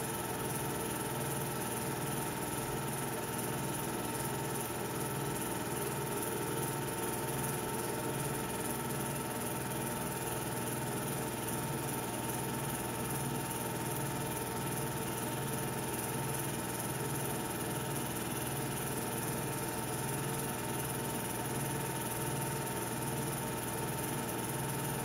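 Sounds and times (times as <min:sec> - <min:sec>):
film projector hum and whir: 0:00.0 - 0:25.0.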